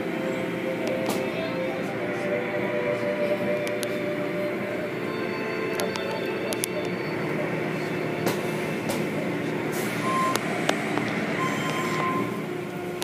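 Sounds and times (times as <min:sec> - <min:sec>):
short electronic beeps: 0:11.4 - 0:12.4.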